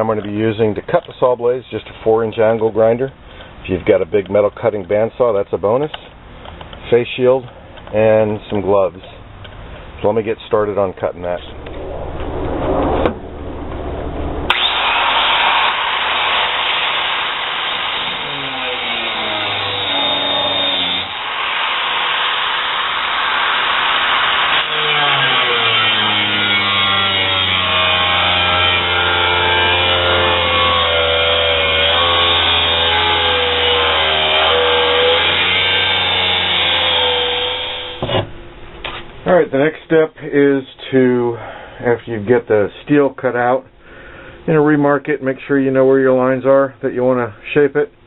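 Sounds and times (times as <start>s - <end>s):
angle grinder cutting steel: 14.5s - 38.0s.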